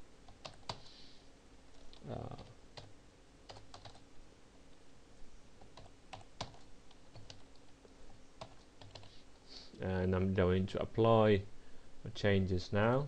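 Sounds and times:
computer keyboard typing: 0.3s - 0.9s, 1.7s - 2.9s, 3.5s - 4.0s, 5.6s - 9.1s.

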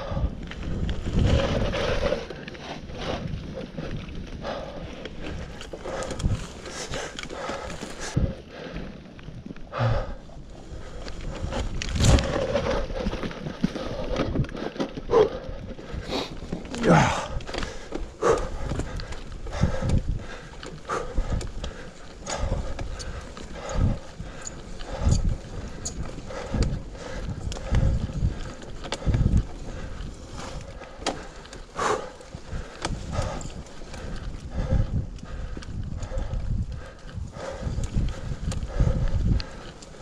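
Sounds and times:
bike tyres rolling on leaves: 0.0s - 40.0s
bike clattering over bumps: 10.8s - 40.0s.

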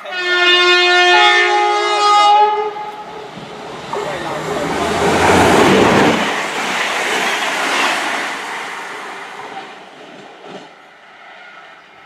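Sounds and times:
train rumble and wheel noise: 0.0s - 12.0s.

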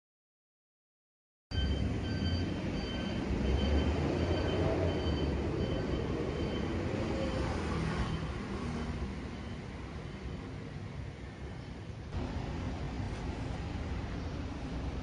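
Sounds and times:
faint high beep: 1.5s - 8.3s
traffic rumble: 1.6s - 15.0s.

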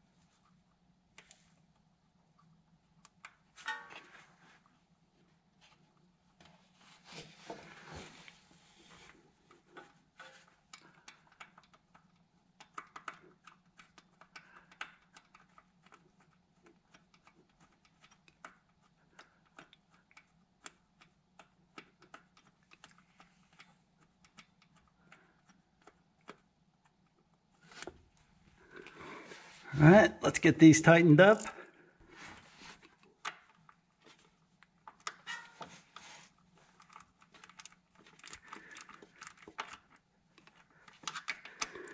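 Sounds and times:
small clicks and taps: 9.5s - 29.0s.

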